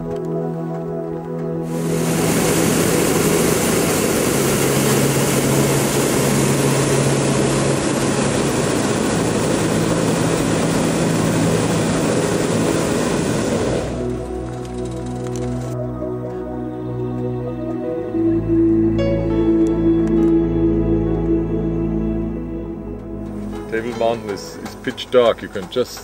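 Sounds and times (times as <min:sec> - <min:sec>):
propane burner roaring: 0:01.6 - 0:15.8.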